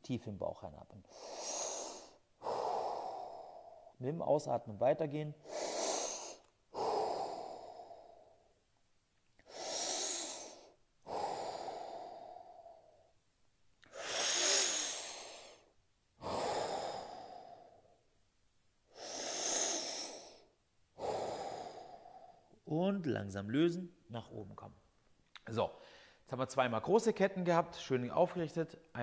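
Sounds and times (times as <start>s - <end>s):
man breathing slowly: 1.1s - 4.0s, 5.4s - 8.6s, 9.4s - 13.2s, 13.8s - 18.1s, 18.8s - 22.6s, 25.8s - 26.2s.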